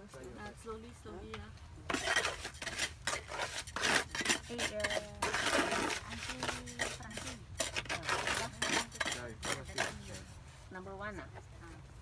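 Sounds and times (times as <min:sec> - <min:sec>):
tile clinking and scraping on stone: 0:01.9 - 0:10.3.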